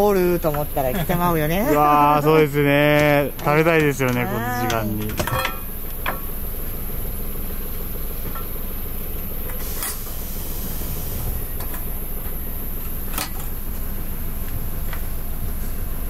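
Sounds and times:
rumbling hiss of cooking burner: 0.0s - 16.0s
bowls and utensils clinking: 4.0s - 5.8s.

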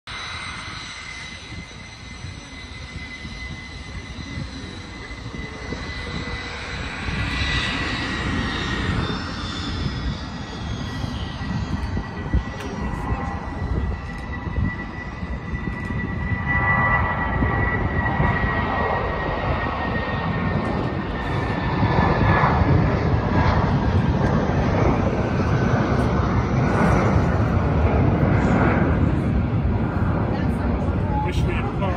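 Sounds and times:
jet engines whining: 0.1s - 31.9s
low rumble: 0.1s - 31.9s.

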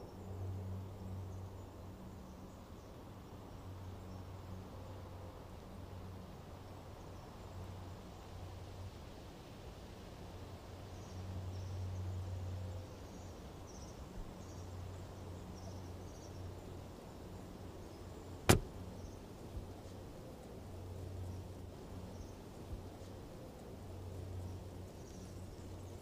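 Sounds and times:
sharp click: 18.5s - 18.7s.

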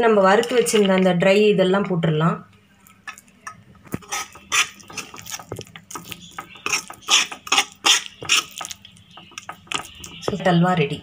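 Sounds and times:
metal spatula scraping a pan: 3.9s - 10.2s.

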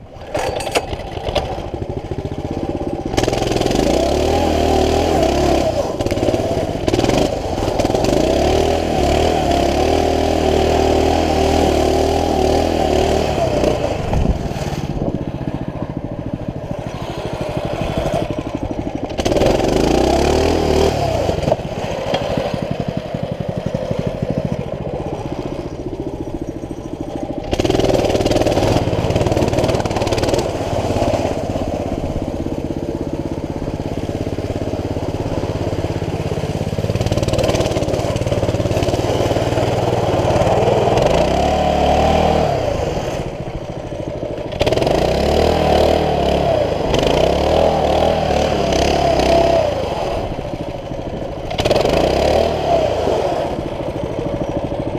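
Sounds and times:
mini bike engine revving: 0.0s - 54.9s.

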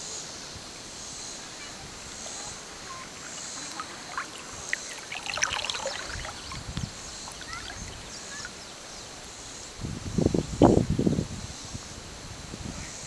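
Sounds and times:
small splashes: 1.6s - 8.8s
water lapping against float: 1.7s - 8.6s.

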